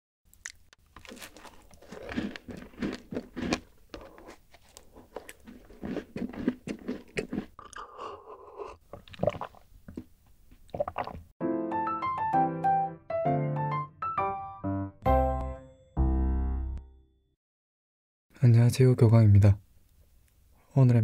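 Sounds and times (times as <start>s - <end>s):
crunchy cookies being chewed: 0.3s - 11.2s
gulping a drink: 5.8s - 11.3s.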